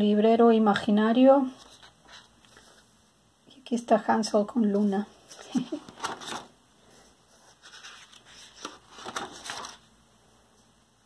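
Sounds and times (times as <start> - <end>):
paper pages rustling: 1.6 - 2.8, 4.8 - 9.9.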